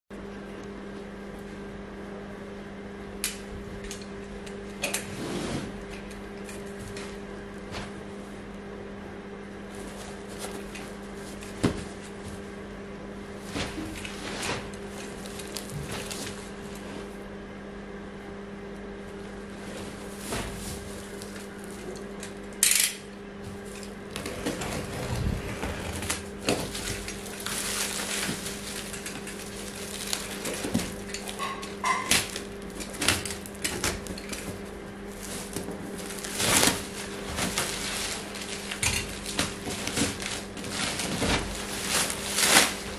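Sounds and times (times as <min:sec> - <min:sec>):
steady low hum: 0:00.2 - 0:42.9
plastic wrap rustling and crinkling: 0:09.6 - 0:12.5, 0:13.3 - 0:17.1, 0:19.5 - 0:22.3, 0:23.4 - 0:42.9.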